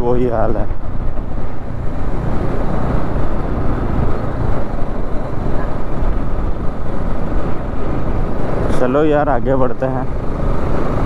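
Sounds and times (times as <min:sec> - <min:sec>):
wind on microphone: 0:00.0 - 0:11.0
motorcycle engine: 0:00.7 - 0:09.0.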